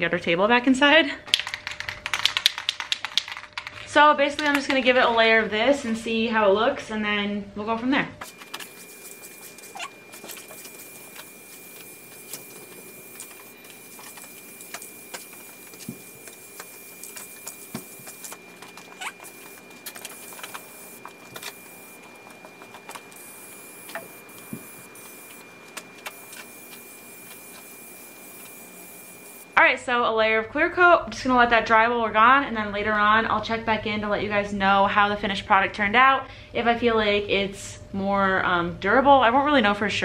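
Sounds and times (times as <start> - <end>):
aerosol spray can hissing: 8.2 - 29.4.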